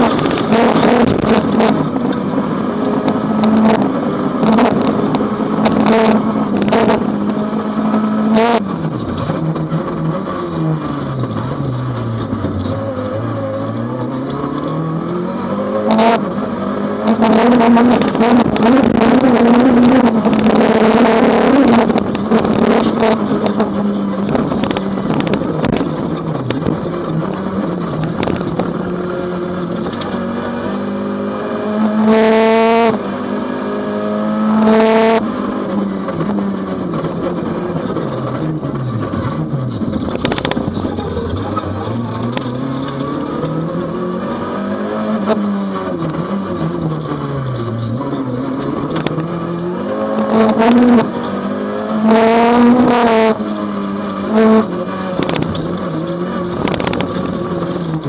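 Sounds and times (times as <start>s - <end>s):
rally car engine revving: 0.0s - 58.0s
sharp knocks and clatter: 39.1s - 43.5s.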